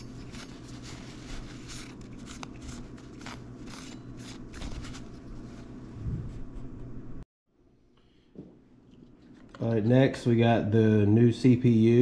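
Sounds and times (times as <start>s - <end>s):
paper napkin rubbing metal heatsink: 0.0s - 6.8s.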